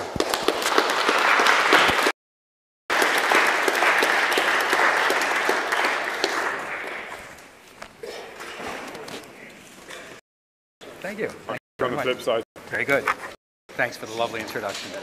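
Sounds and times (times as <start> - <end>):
audience applauding: 0.0 - 2.2, 2.9 - 7.6.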